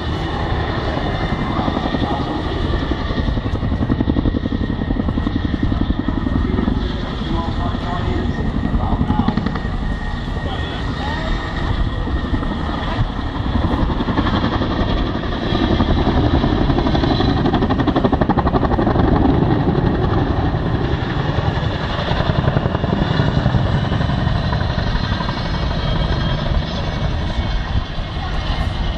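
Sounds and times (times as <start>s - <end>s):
helicopter rotors thumping: 0.0s - 28.9s
helicopter turbine noise: 0.0s - 28.9s.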